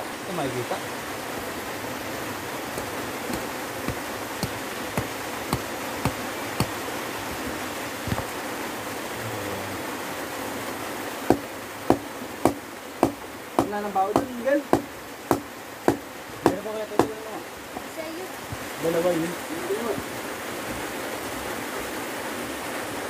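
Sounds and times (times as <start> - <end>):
stream water rushing: 0.0 - 23.0
sharp knocks: 2.8 - 7.4, 8.0 - 8.3, 11.3 - 17.9.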